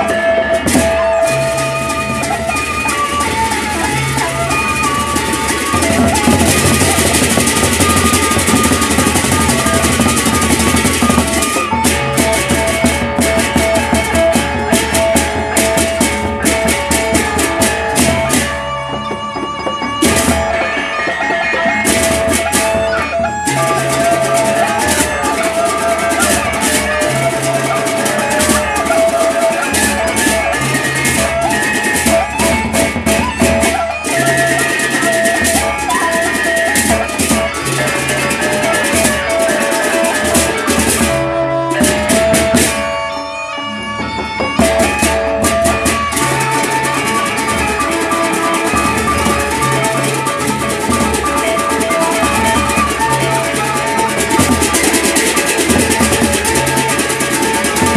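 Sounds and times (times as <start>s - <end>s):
hand cymbals clattering: 0.0s - 43.4s
barrel drums beaten with sticks: 0.6s - 18.6s, 44.4s - 57.9s.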